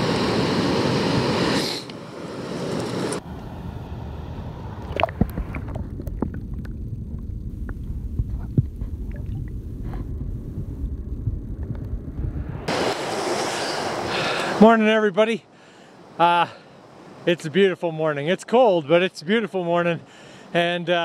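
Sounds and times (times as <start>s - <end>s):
muffled underwater water rumble: 4.6s - 12.7s
sharp clicks and pops: 4.9s - 12.6s.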